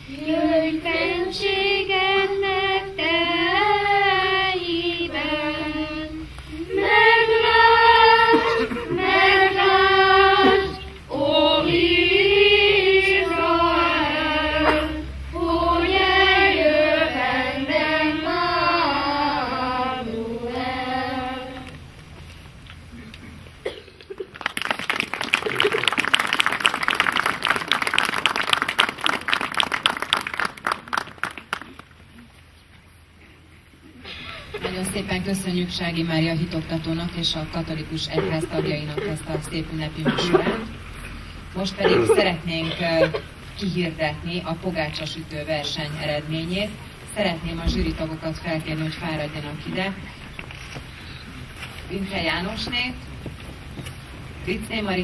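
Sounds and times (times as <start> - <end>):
children's choir singing: 0.0 - 21.9
audience applauding: 24.2 - 32.0.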